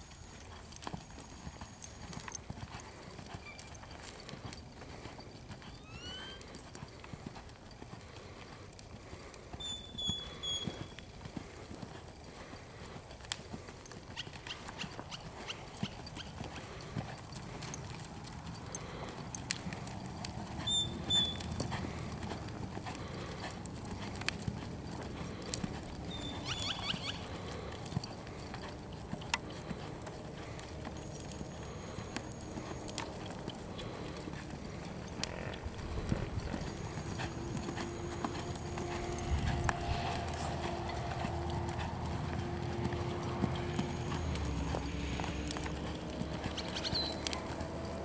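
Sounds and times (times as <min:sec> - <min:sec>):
hooves on soft dirt: 0:00.0 - 0:48.0
short high squeaks: 0:03.4 - 0:03.8, 0:05.6 - 0:06.5, 0:09.6 - 0:11.0, 0:20.6 - 0:21.5.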